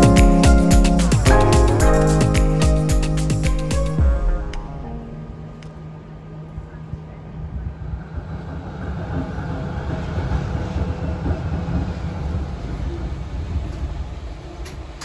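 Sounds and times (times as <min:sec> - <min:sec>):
tram rumbling on rails: 0:04.0 - 0:15.0.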